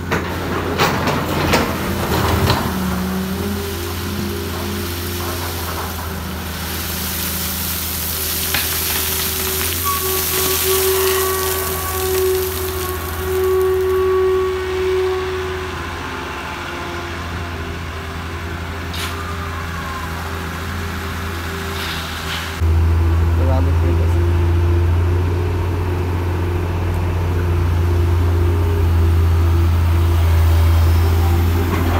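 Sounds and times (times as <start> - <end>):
hydraulic whine: 0.0 - 23.4, 24.0 - 31.9
excavator engine humming: 0.0 - 31.9
coal hissing and rattling: 1.8 - 14.0.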